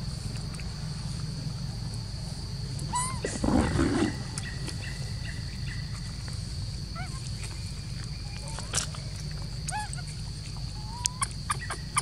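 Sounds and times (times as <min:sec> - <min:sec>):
insect drone: 0:00.0 - 0:12.0
monkey squeak: 0:02.9 - 0:03.2, 0:09.7 - 0:10.0, 0:10.8 - 0:12.0.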